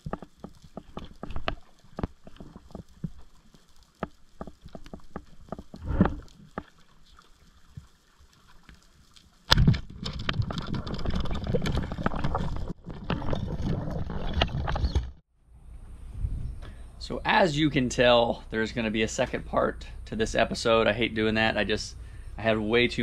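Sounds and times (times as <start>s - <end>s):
underwater clicks and snaps: 0.0s - 15.2s
sharp crack: 9.4s - 11.0s
gurgling bubble noise: 10.3s - 15.0s.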